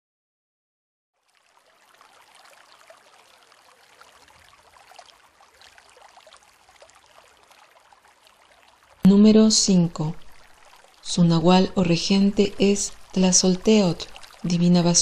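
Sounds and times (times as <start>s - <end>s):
small splashing drips: 1.2s - 9.2s, 10.0s - 11.2s, 12.4s - 14.8s
trickling running water: 1.2s - 15.0s.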